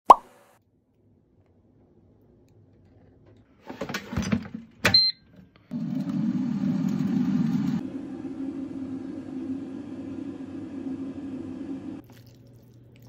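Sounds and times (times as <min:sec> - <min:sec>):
air fryer fan humming: 0:03.8 - 0:12.0.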